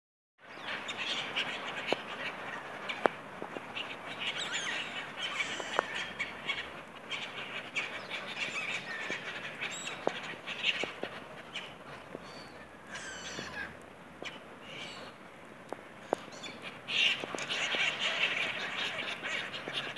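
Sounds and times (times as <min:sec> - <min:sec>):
gulls calling: 0:00.4 - 0:19.9.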